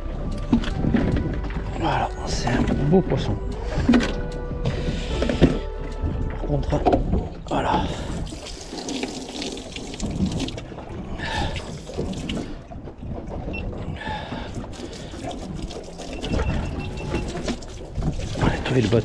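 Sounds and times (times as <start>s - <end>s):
water splashing onto boat deck: 0.0s - 19.0s.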